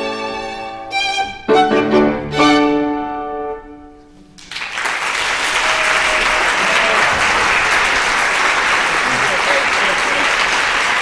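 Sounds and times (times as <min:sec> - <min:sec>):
violins and piano chord: 0:00.0 - 0:04.1
audience applause: 0:04.4 - 0:11.0.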